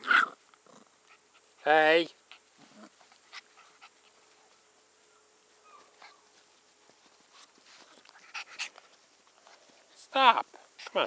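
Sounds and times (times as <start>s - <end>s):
puppies scuffling on blanket: 2.3s - 10.1s.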